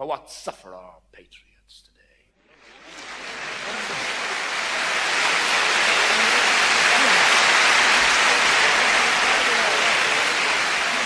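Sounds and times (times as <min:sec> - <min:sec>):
audience applause: 0:02.5 - 0:11.0
faint voices: 0:02.5 - 0:11.0.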